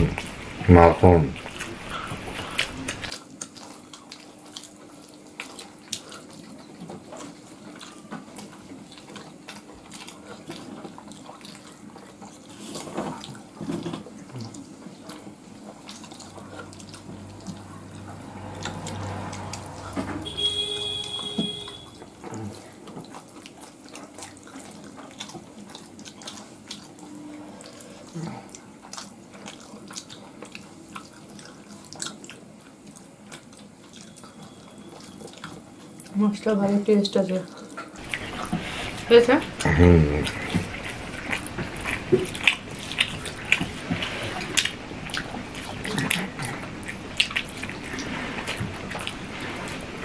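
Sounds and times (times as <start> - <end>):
wet chewing and lip smacks: 1.4 - 20.0, 21.1 - 36.2, 37.5 - 49.9
brief high tone: 20.0 - 22.1.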